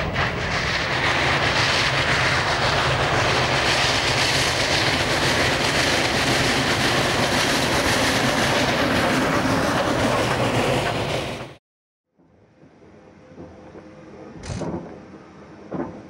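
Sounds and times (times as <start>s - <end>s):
steam locomotive passing: 0.0s - 11.6s.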